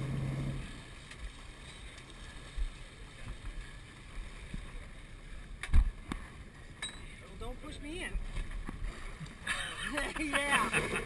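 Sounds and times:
low hum: 0.0 - 4.8
sea water washing: 0.0 - 11.0
wind: 0.0 - 11.0.

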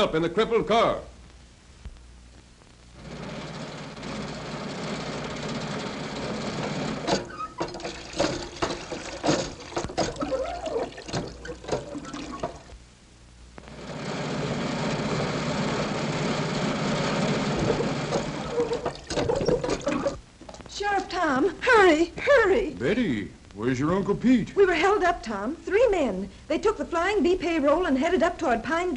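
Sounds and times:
hand pump clanking and squeaking: 7.1 - 12.7, 17.6 - 20.2
water splashing into trough: 7.6 - 12.7, 17.6 - 20.6.

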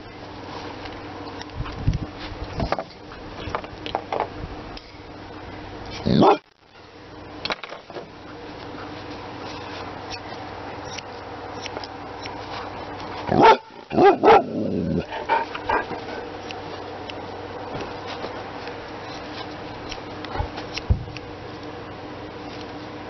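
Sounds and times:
dog barking and whining: 6.0 - 6.4, 13.3 - 16.3.

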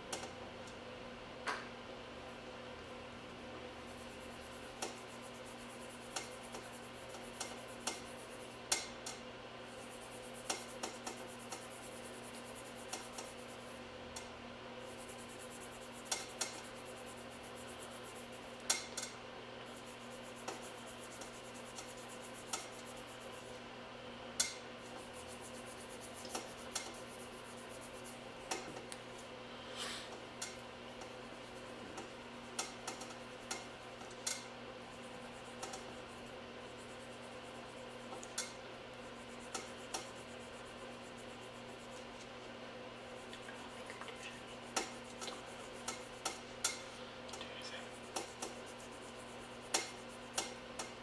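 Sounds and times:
steady low hum: 0.0 - 51.0
manicure tools clicking on nails: 7.2 - 8.1, 16.1 - 16.6, 48.1 - 48.6, 49.7 - 51.0.

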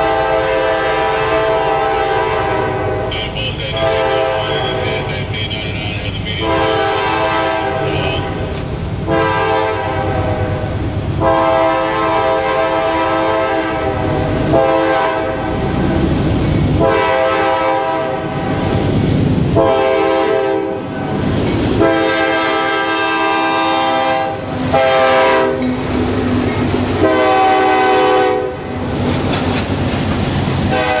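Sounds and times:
train horn blasts: 0.0 - 15.8, 16.8 - 18.7, 19.6 - 20.8, 21.8 - 25.6, 27.0 - 28.7, 30.7 - 31.0
train rumble: 0.0 - 31.0
freight cars rolling: 24.1 - 27.9, 28.6 - 31.0.

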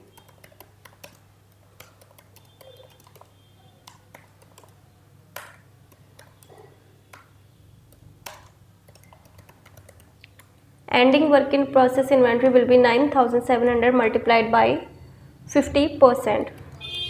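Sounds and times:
typing on a keyboard: 0.0 - 7.3, 7.9 - 10.5.

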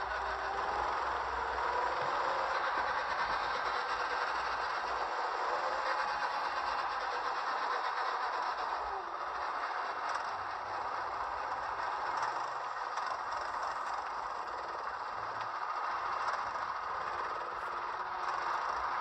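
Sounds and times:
go-kart rattling and rushing: 0.0 - 19.0.

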